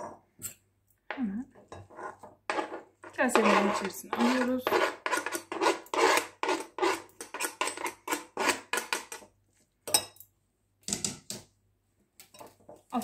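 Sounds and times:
knife scraping cutting board: 1.8s - 9.3s.

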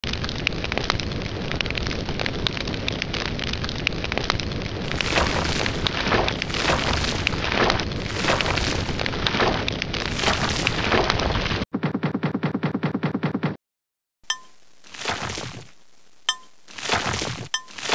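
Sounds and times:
fire crackling: 0.0s - 11.6s, 14.4s - 17.9s
flame whooshing: 3.2s - 9.2s.

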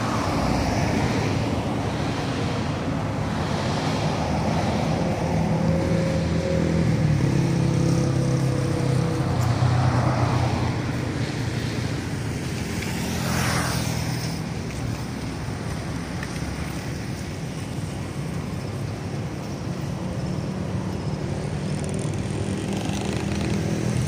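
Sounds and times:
cars passing: 0.0s - 24.0s
engine hum: 0.0s - 24.0s
motorcycle passing close: 21.1s - 24.0s.

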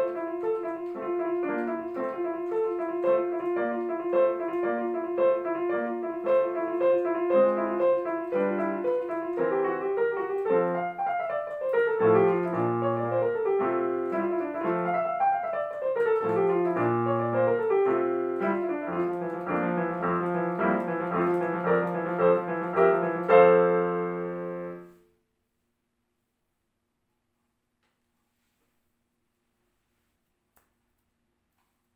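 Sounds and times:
fast classical piano solo: 0.0s - 25.0s.

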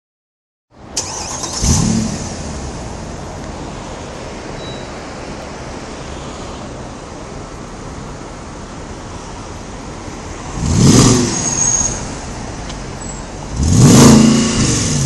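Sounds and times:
car exhaust starting and idling: 1.0s - 3.0s.

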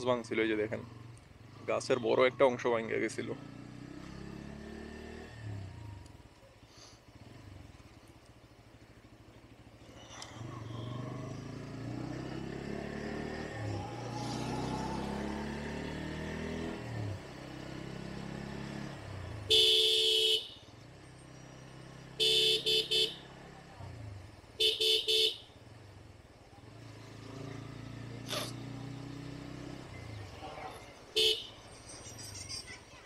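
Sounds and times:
motorcycle engine revving: 0.0s - 6.3s, 8.8s - 32.4s
horn beeping: 19.5s - 20.6s, 22.2s - 23.3s, 24.6s - 25.5s, 31.1s - 31.8s.

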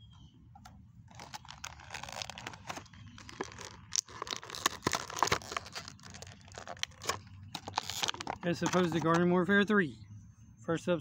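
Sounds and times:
toy packaging crinkling and tearing: 1.1s - 9.2s.

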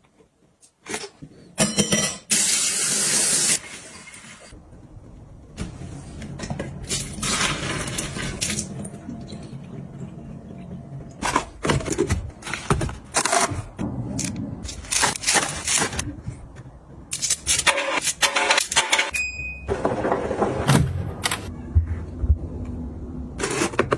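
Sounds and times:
plastic and metal items handled: 11.2s - 16.5s.

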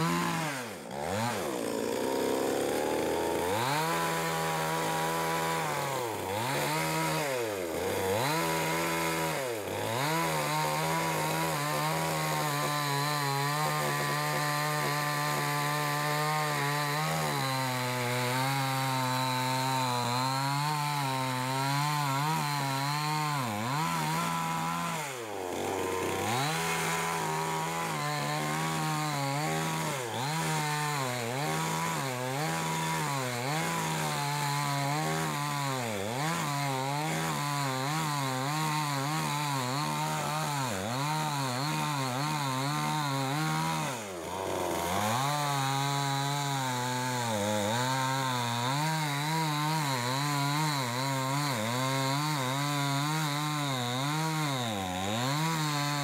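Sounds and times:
chainsaw cutting wood: 0.0s - 56.0s.

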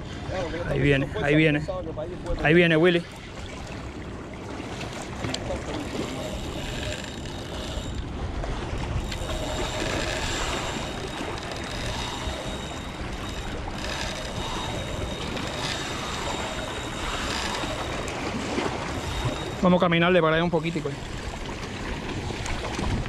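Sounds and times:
water sloshing against rocks: 2.2s - 23.0s
wind rumbling on microphone: 4.7s - 19.6s, 20.8s - 23.0s.

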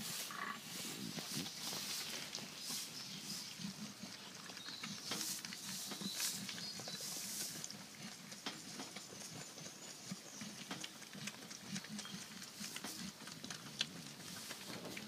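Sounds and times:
faint rustling: 0.0s - 3.5s.

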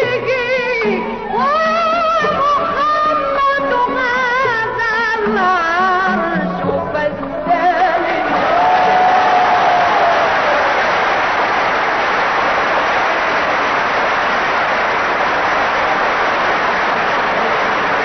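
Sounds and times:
audience applauding: 8.2s - 18.0s.

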